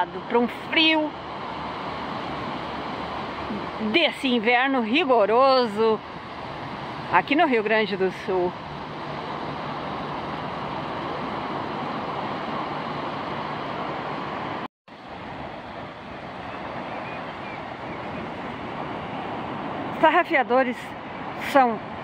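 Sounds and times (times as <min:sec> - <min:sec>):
sea surf washing on beach: 0:00.0 - 0:22.0
wind: 0:00.0 - 0:22.0.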